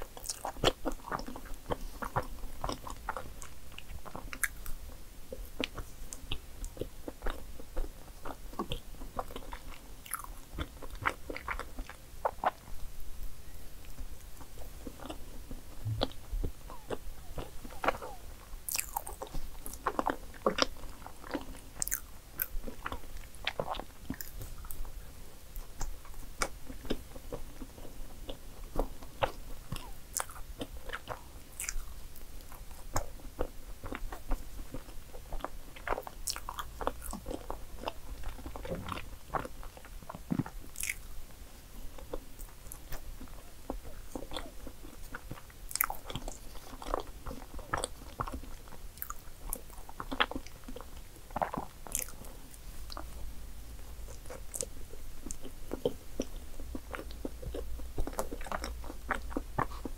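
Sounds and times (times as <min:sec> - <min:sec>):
person chewing with wet mouth clicks: 0:00.1 - 0:12.7, 0:13.8 - 0:24.9, 0:25.6 - 0:41.1, 0:42.0 - 0:53.2, 0:53.8 - 0:59.9.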